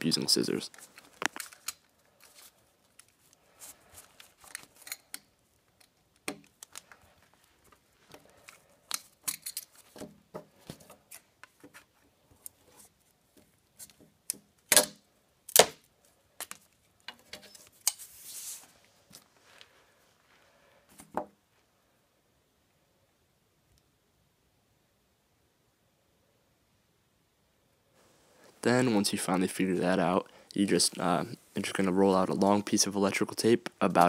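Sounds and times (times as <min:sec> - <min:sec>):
wooden dowel snapping: 0:14.3 - 0:15.8.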